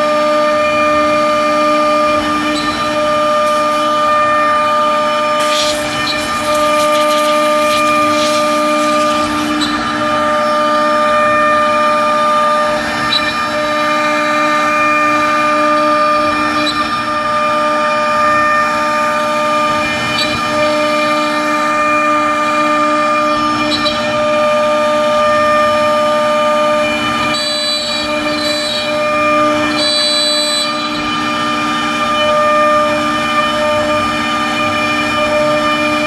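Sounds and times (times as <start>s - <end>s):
router spindle whining: 0.0s - 36.0s
hiss of wood cutting: 5.2s - 9.9s.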